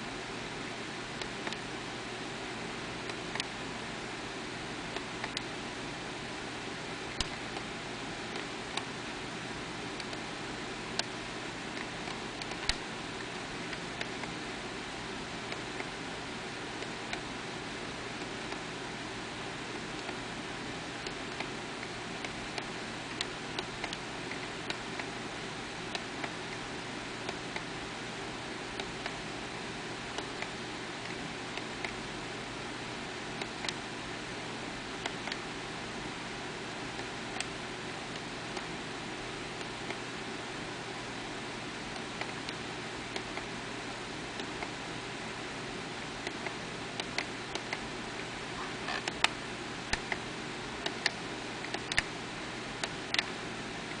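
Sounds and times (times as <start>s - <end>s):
transmitter buttons clicking: 50.8s - 52.1s.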